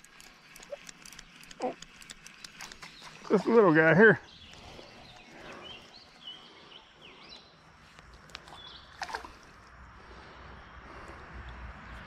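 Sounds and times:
small birds chirping: 0.0 - 9.4
splash into water: 8.9 - 9.4.

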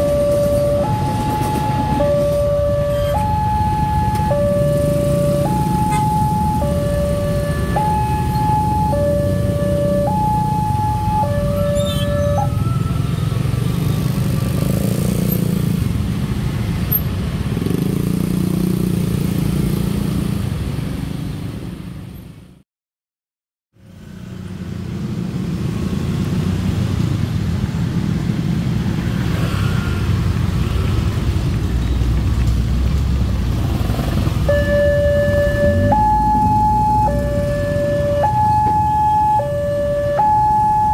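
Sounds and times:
crossing warning alarm tone: 0.0 - 13.4, 34.4 - 40.9
traffic over level crossing: 0.0 - 22.5, 23.8 - 40.9.

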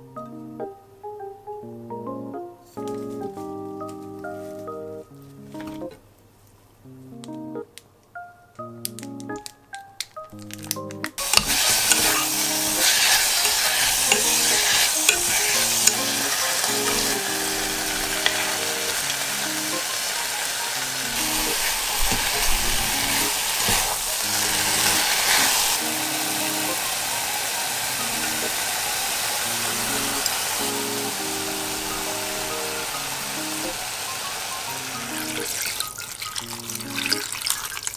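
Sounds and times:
meat and vegetables sizzling: 10.2 - 37.9
stirring knocks: 11.2 - 25.8.

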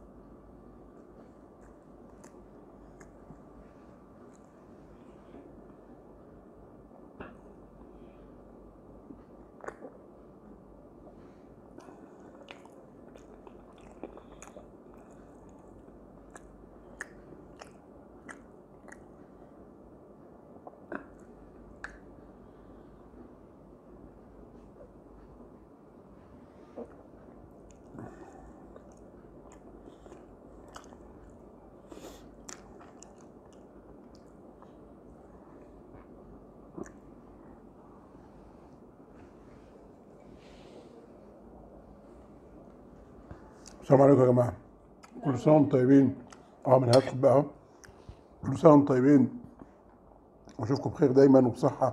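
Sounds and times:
chewing and swallowing: 1.1 - 3.6, 9.1 - 10.1, 11.0 - 19.4, 20.6 - 22.1, 26.6 - 37.4
wet mouth clicks and smacks: 9.6 - 10.0, 11.8 - 19.2, 20.6 - 22.1, 32.4 - 34.4, 36.8 - 37.0.

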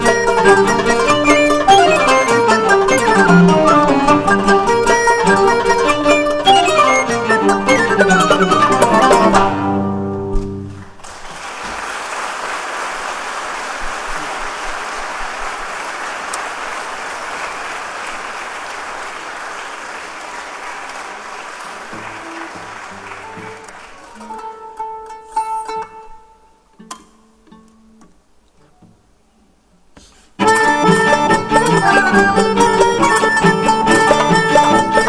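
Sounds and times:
string ensemble playing: 0.0 - 10.9, 18.9 - 26.4, 30.4 - 35.0
audience applause: 10.7 - 24.8.

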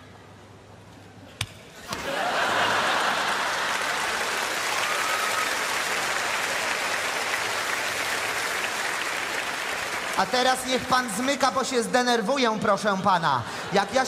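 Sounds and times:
audience applauding: 2.0 - 11.5.

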